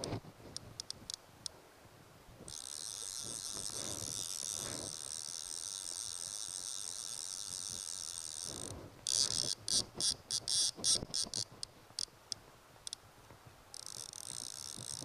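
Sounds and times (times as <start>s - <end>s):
fly reel drag clicking and buzzing: 2.5s - 12.1s, 13.7s - 15.0s.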